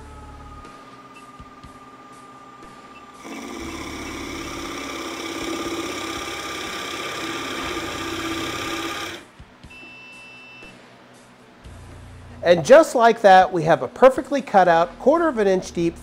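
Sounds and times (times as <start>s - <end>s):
drill press boring into wood: 1.0s - 9.2s.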